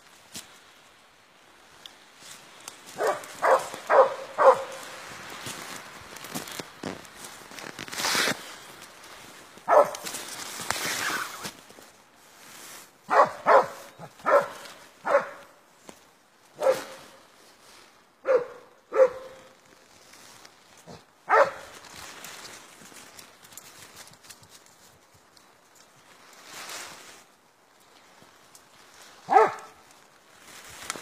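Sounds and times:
dog barking: 0:03.0 - 0:04.8, 0:09.7 - 0:10.0, 0:13.1 - 0:15.5, 0:16.6 - 0:17.0, 0:18.2 - 0:19.5, 0:21.3 - 0:21.7, 0:29.3 - 0:29.8.

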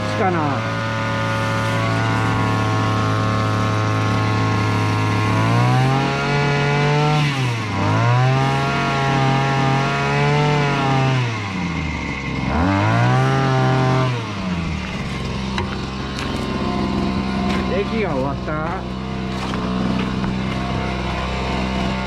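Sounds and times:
small sprayer engine running: 0:00.0 - 0:22.0.

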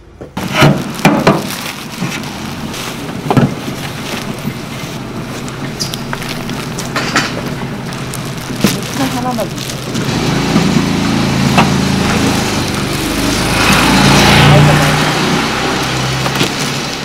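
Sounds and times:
sharp knocks and rustles: 0:00.2 - 0:12.6
outdoor rushing noise: 0:00.4 - 0:17.0.

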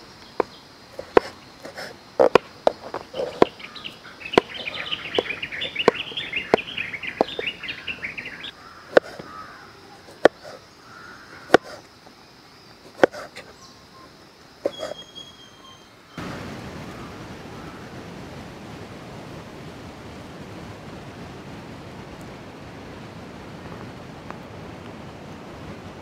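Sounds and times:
small birds chirping: 0:00.0 - 0:16.2
knife chopping on wooden board: 0:11.5 - 0:11.8, 0:13.0 - 0:13.3.

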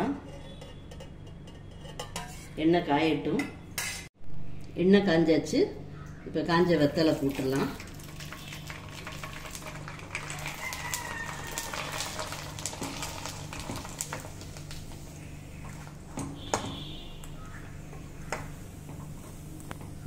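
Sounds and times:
metal spoon stirring: 0:00.0 - 0:02.6
hot oil sizzling: 0:06.6 - 0:20.0.

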